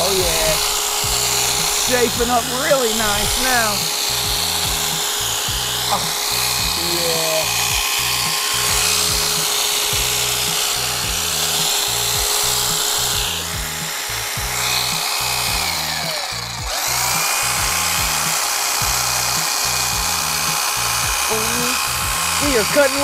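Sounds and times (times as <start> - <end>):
background music with beat: 0.0 - 23.0
electric hedge trimmer whine: 0.0 - 23.0.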